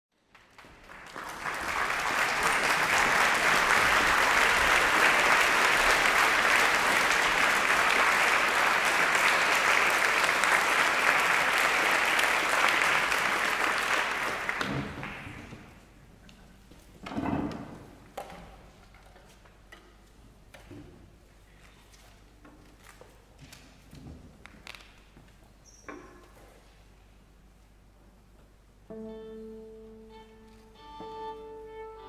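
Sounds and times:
audience applauding: 0:00.2 - 0:15.8.

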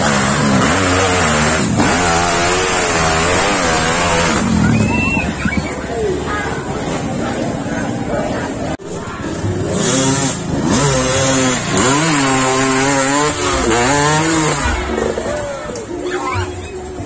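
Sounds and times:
dirt bike engine revving: 0:00.0 - 0:07.6, 0:08.7 - 0:17.0.

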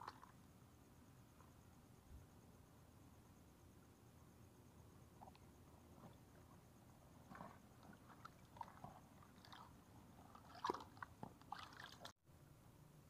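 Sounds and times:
sloshing in shallow water: 0:07.2 - 0:12.1.

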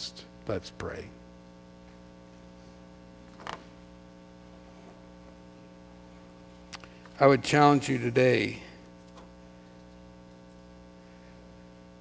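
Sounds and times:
low electrical mains hum: 0:00.0 - 0:12.0.

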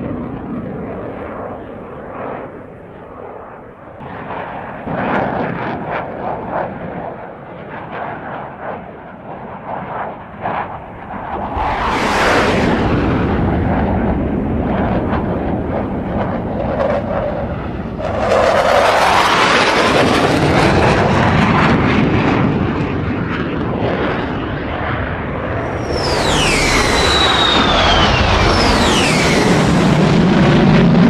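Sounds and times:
wind rushing: 0:11.1 - 0:17.2, 0:25.5 - 0:31.0
electric motor and propeller: 0:25.6 - 0:30.6.

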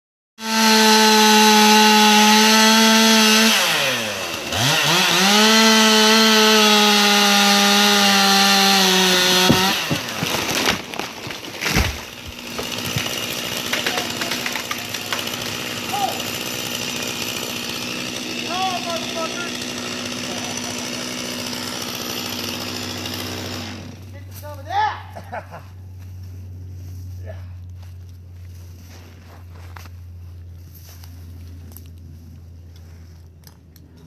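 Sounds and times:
chainsaw cutting: 0:00.4 - 0:33.3
tree cracking and falling: 0:04.6 - 0:23.2.

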